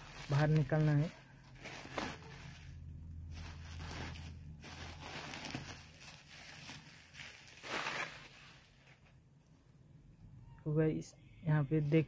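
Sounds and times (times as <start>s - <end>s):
bubble wrap crinkling: 0.0s - 9.1s.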